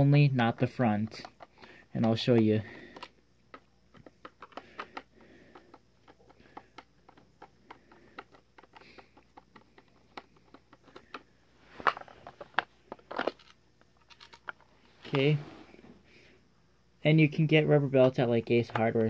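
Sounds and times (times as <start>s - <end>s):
plastic casing scraping: 1.1s - 16.0s.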